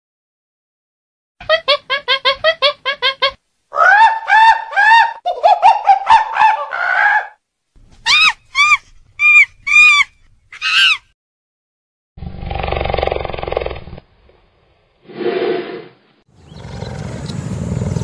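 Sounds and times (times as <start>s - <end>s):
macaque calling: 3.7s - 7.4s, 8.1s - 11.0s.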